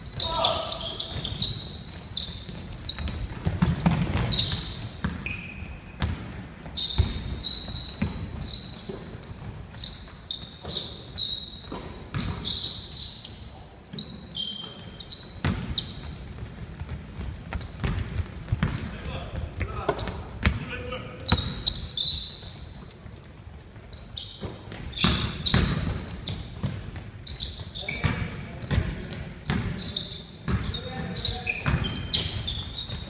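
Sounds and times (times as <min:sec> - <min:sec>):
sneakers squeaking: 0:00.0 - 0:33.0
basketball bouncing on wooden floor: 0:02.2 - 0:05.3, 0:06.0 - 0:09.8, 0:11.6 - 0:12.6, 0:15.3 - 0:20.7, 0:24.4 - 0:29.8, 0:30.4 - 0:33.0.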